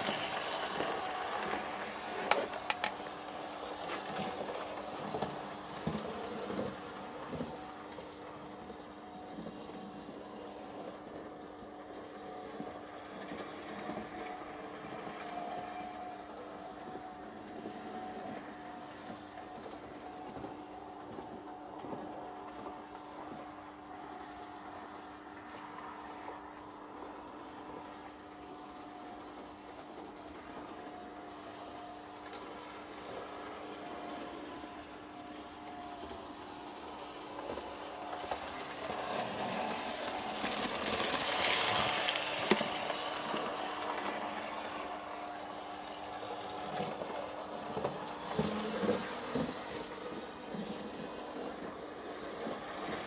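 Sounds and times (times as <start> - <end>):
model train motor whirring: 0.0 - 11.2, 27.0 - 53.0.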